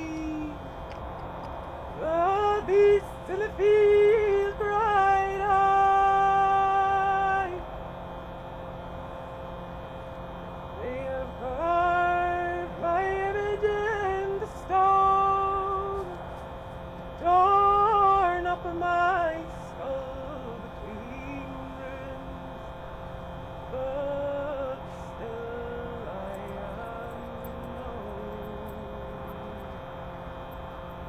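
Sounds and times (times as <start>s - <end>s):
woman singing long held notes: 0.0s - 0.6s
faint steady drone: 0.0s - 31.0s.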